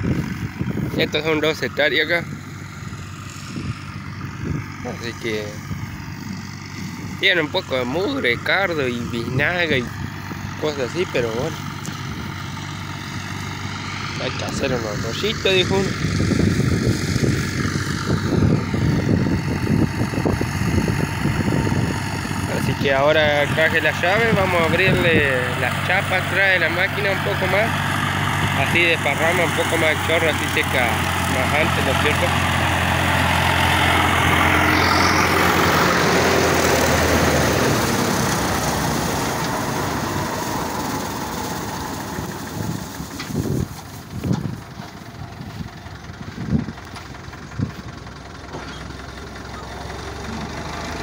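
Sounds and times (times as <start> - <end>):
wind buffeting microphone: 0.0 - 12.5, 14.3 - 25.8, 31.8 - 47.9
distant tractor engine: 0.0 - 51.0.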